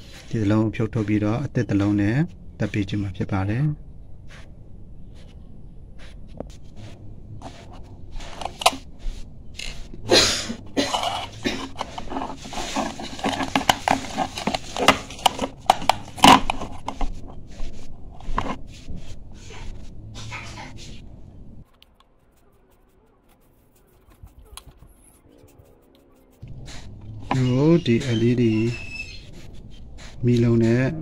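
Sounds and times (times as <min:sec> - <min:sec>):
hands handling metal bulb housing: 0:10.8 - 0:17.3.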